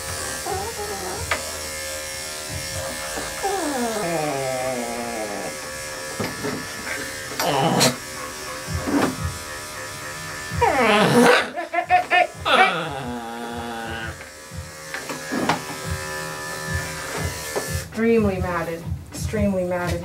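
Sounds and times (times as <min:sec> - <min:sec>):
electric clippers humming: 0:00.0 - 0:19.1.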